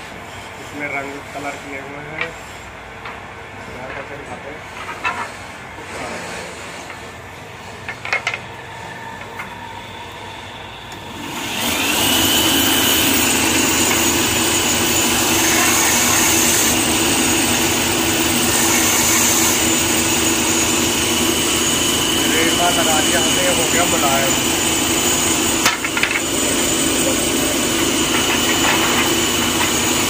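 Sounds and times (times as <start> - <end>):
electric motor whining: 8.7 - 30.0.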